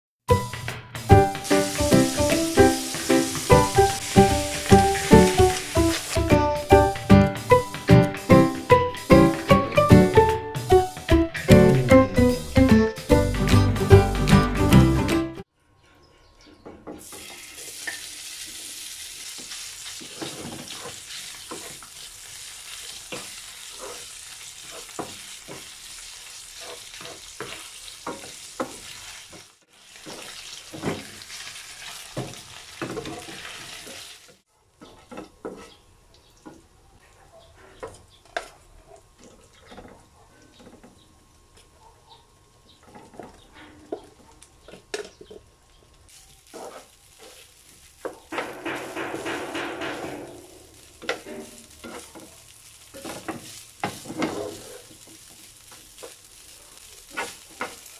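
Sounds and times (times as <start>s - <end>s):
meat sizzling in a frying pan: 1.0s - 7.8s, 17.1s - 34.4s, 46.1s - 49.0s, 50.4s - 57.9s
wooden spatula scraping a pan: 19.4s - 31.2s, 46.5s - 47.5s, 53.0s - 55.4s, 57.1s - 57.9s.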